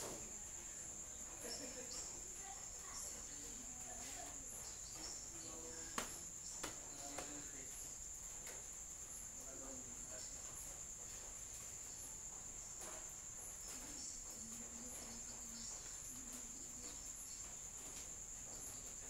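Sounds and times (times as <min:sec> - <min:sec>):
insects trilling: 0:00.0 - 0:19.0.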